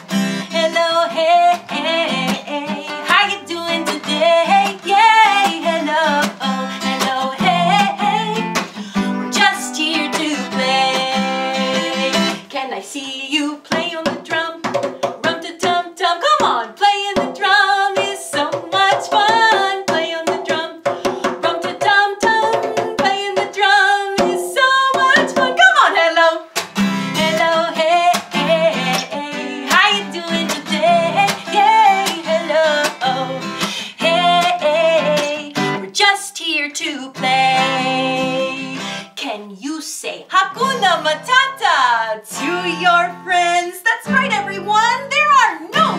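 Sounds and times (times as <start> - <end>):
acoustic guitar strummed: 0.0 - 12.5, 13.7 - 35.9, 37.2 - 39.1, 40.4 - 43.5, 44.1 - 45.9
woman singing: 0.0 - 45.9
djembe hand drum slapped: 13.7 - 15.8, 16.4 - 25.6.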